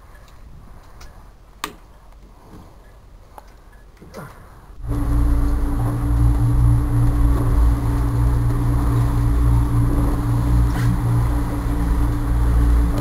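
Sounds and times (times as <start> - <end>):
boat engine droning: 4.8 - 13.0.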